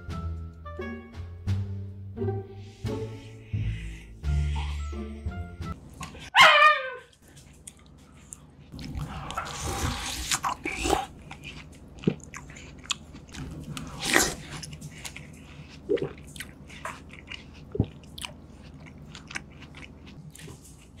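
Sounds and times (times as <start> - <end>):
person chewing food: 7.1 - 21.0.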